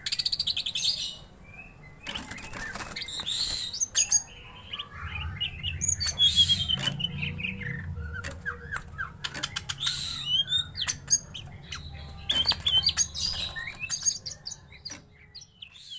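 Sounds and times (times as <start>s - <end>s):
birds whistling and chirping: 0.0s - 15.9s
clicks in bird cage: 2.0s - 4.2s, 6.0s - 7.1s, 8.2s - 10.1s, 10.8s - 15.2s
wing flutters: 2.1s - 3.8s.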